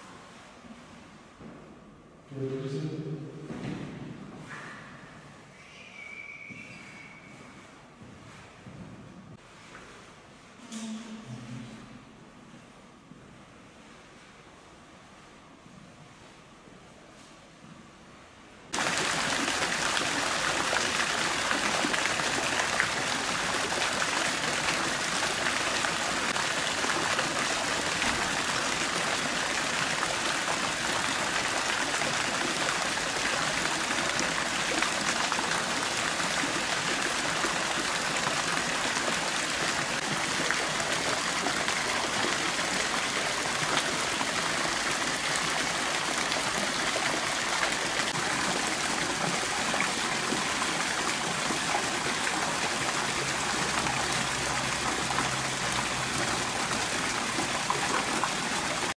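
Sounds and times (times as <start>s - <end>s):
water running and trickling: 18.8s - 58.9s.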